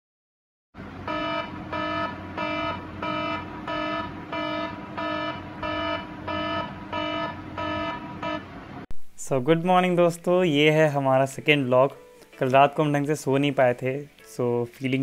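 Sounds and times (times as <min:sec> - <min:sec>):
tablet alarm pulsing tone: 0:01.0 - 0:08.6.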